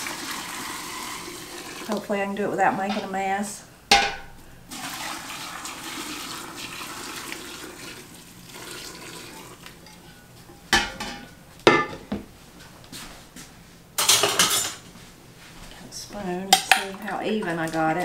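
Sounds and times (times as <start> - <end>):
metal pot knocking down: 3.9 - 4.4, 10.7 - 12.1.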